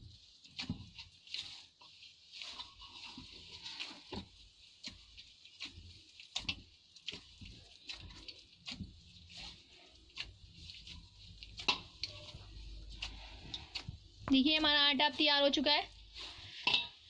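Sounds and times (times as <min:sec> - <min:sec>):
dough kneading soft slaps: 0:02.4 - 0:15.0.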